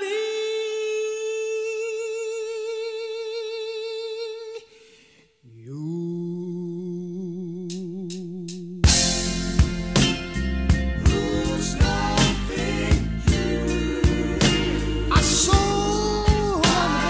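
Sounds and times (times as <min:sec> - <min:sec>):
man singing: 0:00.0 - 0:04.7, 0:05.5 - 0:08.9, 0:11.0 - 0:17.0
band playing: 0:08.9 - 0:17.0.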